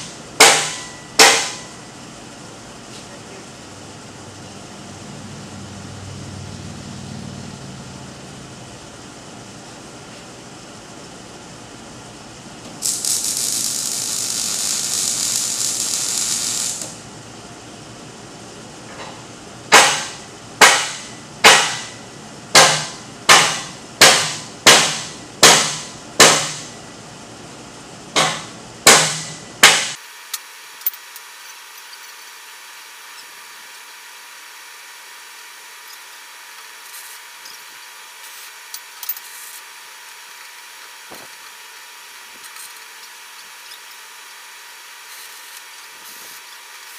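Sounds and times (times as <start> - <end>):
hammer striking steel tube: 0.4 - 1.7, 19.7 - 22.0, 22.6 - 26.7, 28.2 - 30.0
steady high hiss: 12.8 - 17.2.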